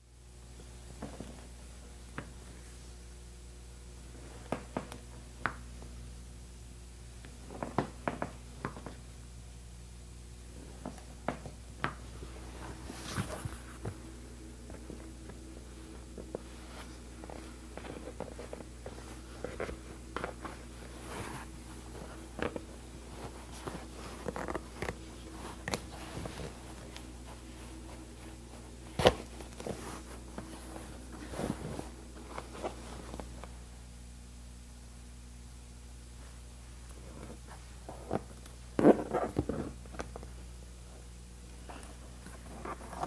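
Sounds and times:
steady low hum: 0.0 - 43.0
leather rustling: 10.6 - 33.6.

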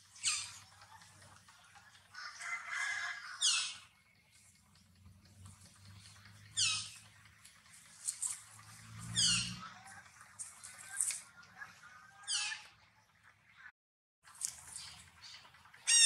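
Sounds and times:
faint outdoor background: 0.0 - 16.0
high-pitched animal calls: 9.0 - 9.9, 10.8 - 12.8.

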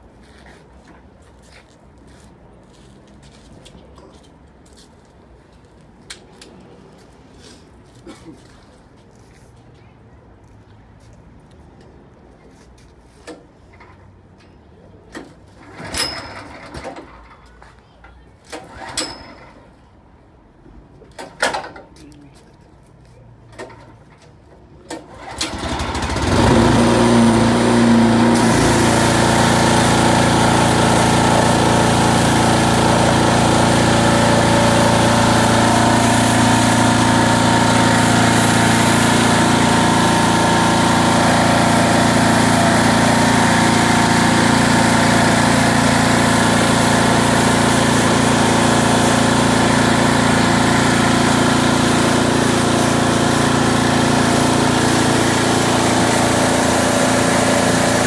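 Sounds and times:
pressure washer running: 25.2 - 58.0
high-pressure spray hissing: 28.2 - 58.0.

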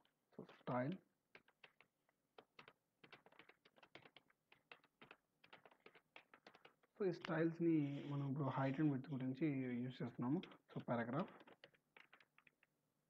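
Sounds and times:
computer keyboard typing: 0.4 - 7.4, 10.2 - 12.7.

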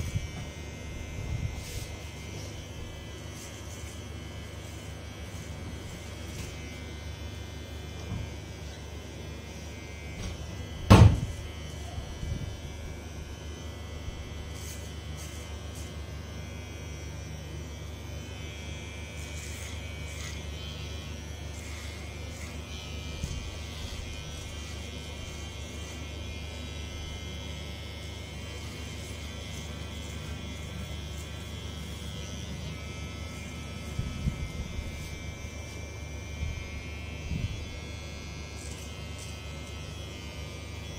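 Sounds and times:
electric hair clipper buzzing: 0.0 - 40.9
sharp knock: 10.9 - 11.3.

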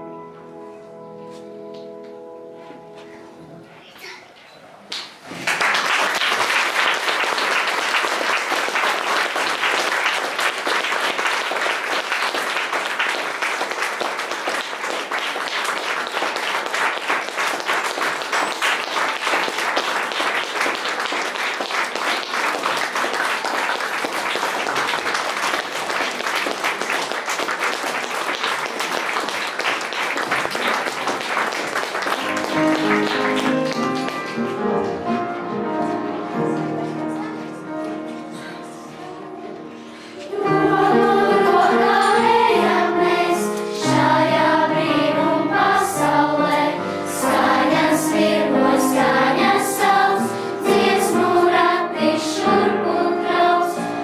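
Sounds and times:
audience applauding: 4.9 - 34.6.

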